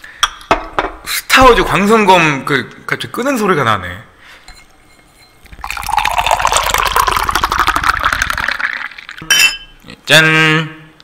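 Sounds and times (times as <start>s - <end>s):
beer gurgling into glass: 5.5s - 9.3s.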